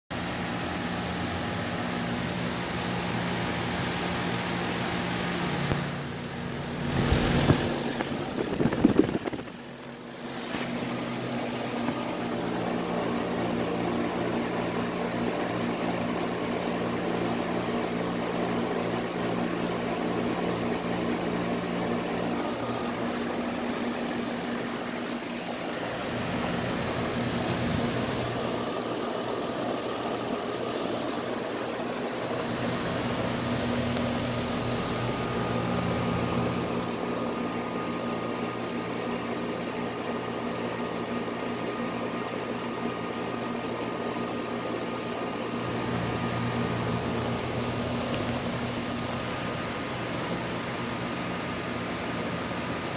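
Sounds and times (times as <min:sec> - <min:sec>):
condenser fan air rushing: 0:00.1 - 0:52.9
low compressor hum: 0:00.2 - 0:30.0.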